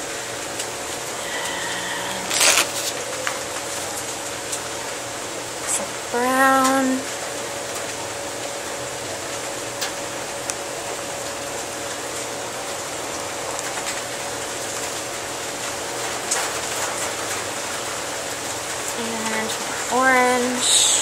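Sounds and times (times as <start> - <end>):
faint hum: 0.0 - 7.4.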